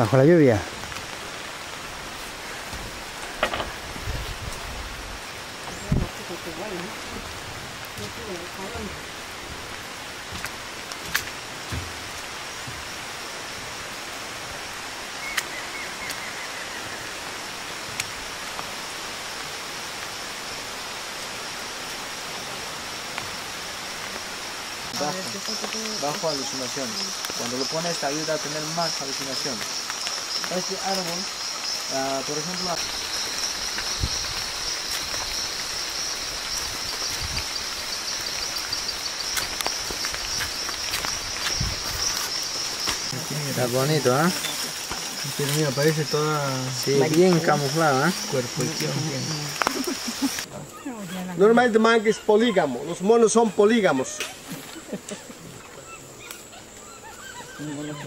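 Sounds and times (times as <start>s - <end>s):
rain on foliage: 0.0s - 50.6s, 51.3s - 57.9s
high-pitched insect drone: 23.8s - 50.5s.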